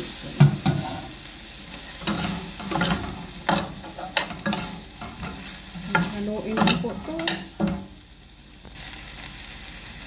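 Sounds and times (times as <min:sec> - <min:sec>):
food sizzling faintly: 0:00.0 - 0:10.0
spatula scraping a metal pan: 0:01.9 - 0:07.9.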